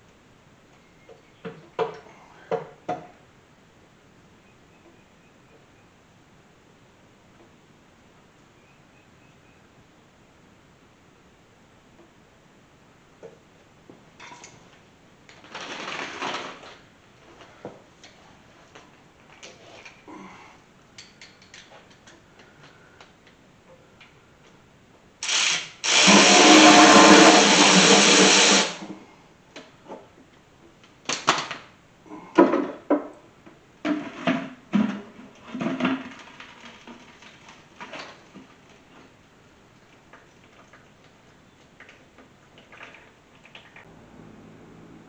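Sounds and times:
handheld power tool running: 25.2s - 28.9s.

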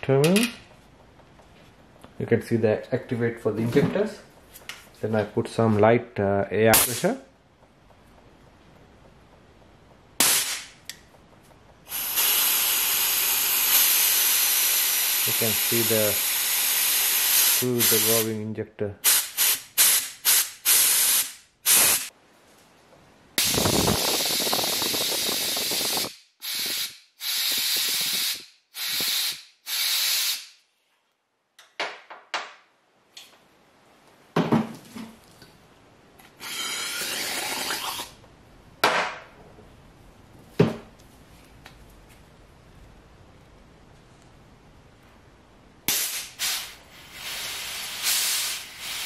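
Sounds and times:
fuel injector spraying in hissing bursts: 11.9s - 18.2s, 19.1s - 22.1s, 23.4s - 30.4s, 45.9s - 49.0s.

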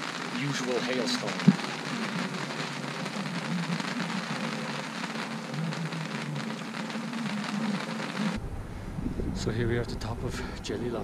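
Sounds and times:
hail pattering on a surface: 0.0s - 8.4s.

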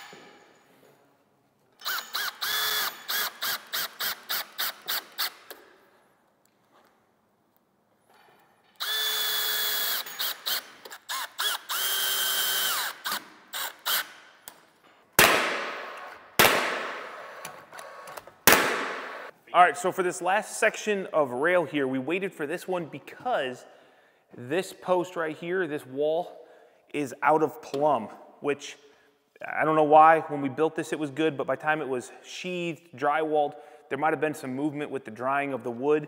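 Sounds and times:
cordless drill running: 1.8s - 5.5s, 8.8s - 14.2s
nail gun firing: 15.2s - 17.2s, 18.4s - 19.3s.

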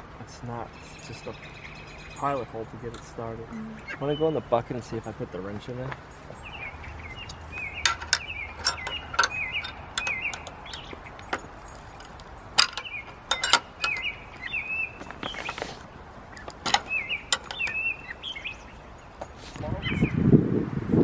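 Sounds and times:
wrench clinking on metal hook: 7.3s - 14.1s.

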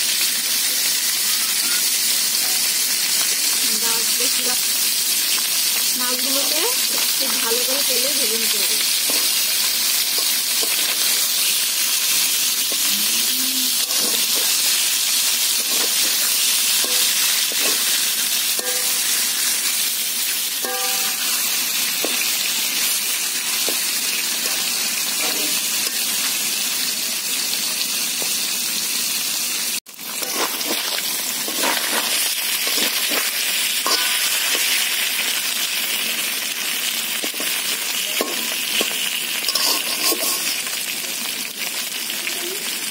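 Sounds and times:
fish sizzling in oil: 0.0s - 42.9s
metal spatula scraping a wok: 9.0s - 11.6s, 13.8s - 14.8s, 15.5s - 19.7s, 30.1s - 35.0s, 37.2s - 40.8s.

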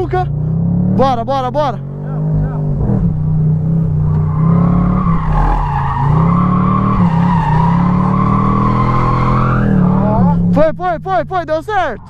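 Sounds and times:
car engine running hard: 0.0s - 12.0s
tyres squealing: 4.0s - 10.2s.

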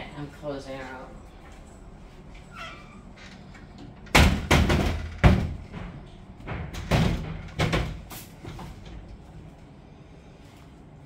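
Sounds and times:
wooden door knocks and thuds: 4.1s - 8.1s.

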